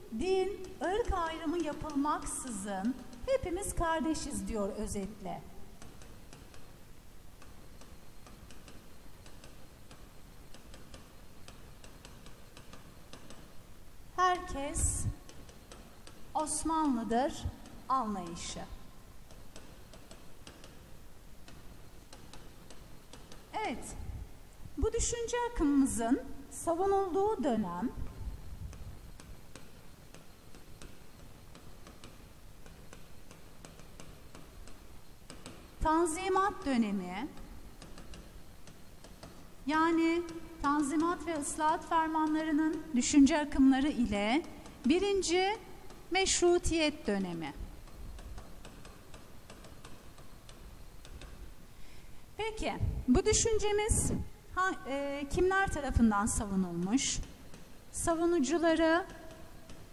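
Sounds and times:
faint room noise: 0:00.0 - 0:59.9
stylus tapping on tablet screen: 0:00.2 - 0:54.2, 0:55.3 - 0:59.9
pen tip tapping on screen: 0:19.3 - 0:23.5, 0:28.0 - 0:39.5, 0:47.8 - 0:51.9.

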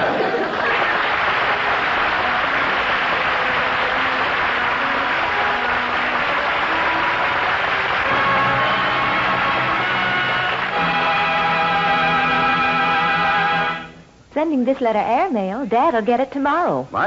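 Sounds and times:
audience applauding: 0:00.0 - 0:13.9
held music notes: 0:01.3 - 0:14.2.

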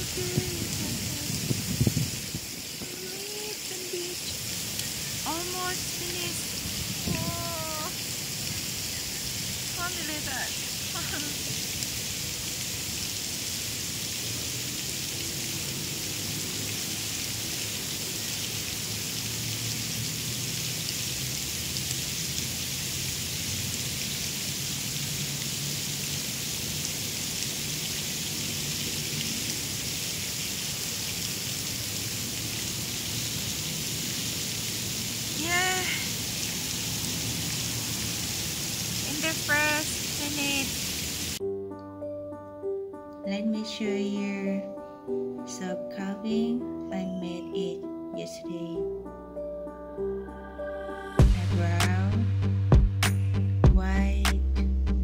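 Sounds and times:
outdoor background hiss: 0:00.0 - 0:41.6.

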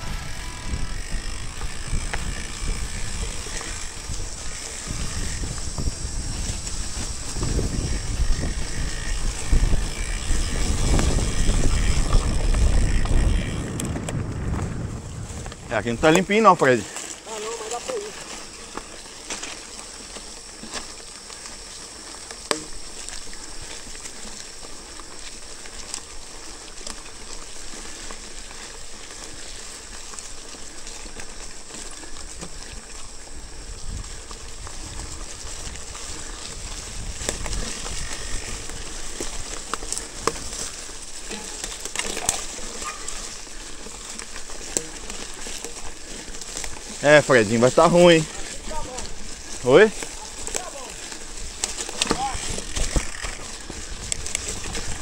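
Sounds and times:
low rumble: 0:00.0 - 0:03.4, 0:09.4 - 0:16.0
bike tyres crackling on leaves: 0:00.0 - 0:55.0.

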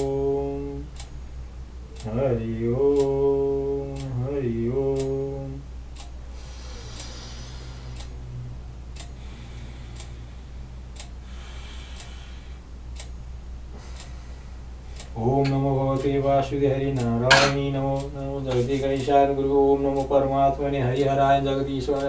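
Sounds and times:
man chanting a prayer: 0:00.0 - 0:00.9, 0:15.2 - 0:22.0
clock ticking: 0:00.0 - 0:01.2, 0:02.8 - 0:04.2, 0:04.8 - 0:05.3, 0:05.9 - 0:06.3, 0:07.9 - 0:09.2, 0:10.0 - 0:10.2, 0:10.8 - 0:11.2, 0:12.8 - 0:14.2, 0:15.0 - 0:22.0
soft rustling: 0:18.5 - 0:19.0.

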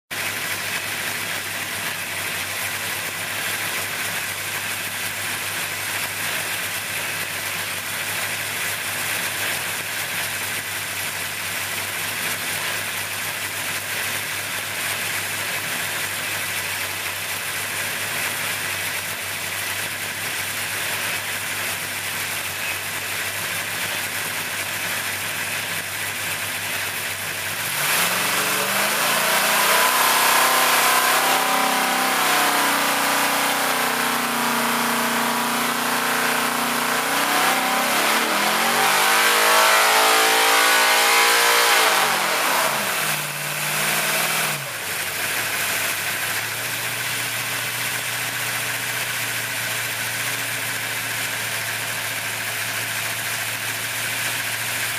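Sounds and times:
engine idling and revving: 0:00.1 - 0:54.9.

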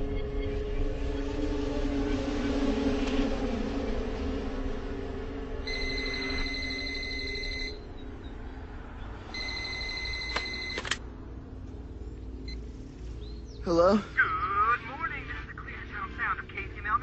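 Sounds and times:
electronic telephone ring: 0:05.7 - 0:07.9, 0:09.4 - 0:11.0
handset clicks: 0:09.7 - 0:11.0.

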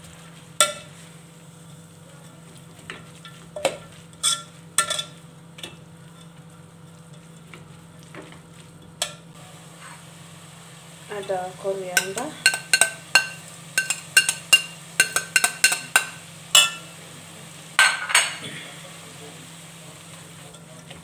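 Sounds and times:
faint sizzle: 0:00.0 - 0:21.0
spoon clinking against pot: 0:04.2 - 0:05.8, 0:12.0 - 0:16.9
spoon stirring cabbage in pot: 0:11.2 - 0:16.9.

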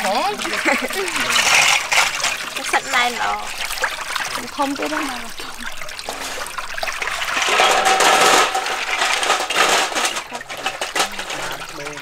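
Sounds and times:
water splashing and draining: 0:00.0 - 0:12.0
snail shells clattering: 0:00.2 - 0:03.7, 0:07.2 - 0:12.0.

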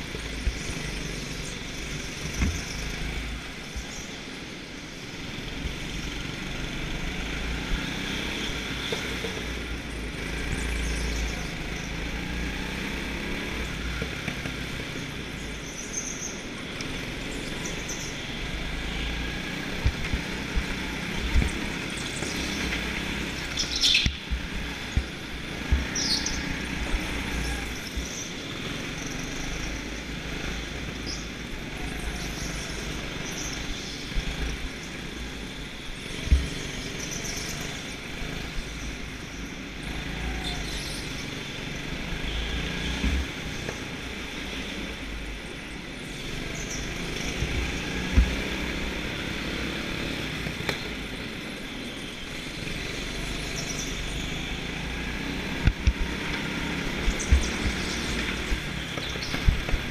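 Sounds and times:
go-kart engines running: 0:00.0 - 0:59.9.

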